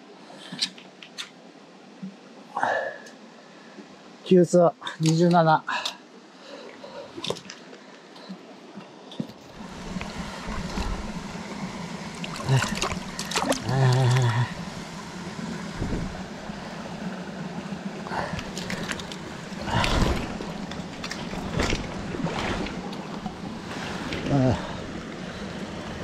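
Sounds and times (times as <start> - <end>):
stream water running: 0.0 - 26.0
splashes in shallow water: 12.0 - 14.6, 18.0 - 25.0
wavering voice-like sound: 13.6 - 14.6.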